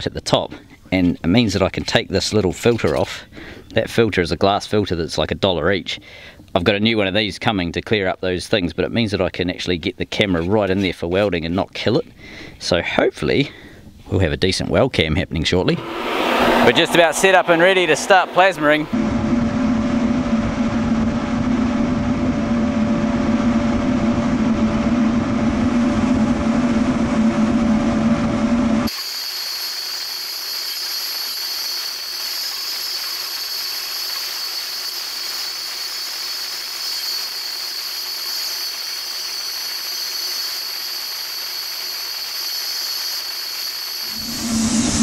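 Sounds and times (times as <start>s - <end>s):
shop vacuum running: 15.6s - 19.6s
steady high hiss: 28.9s - 45.0s.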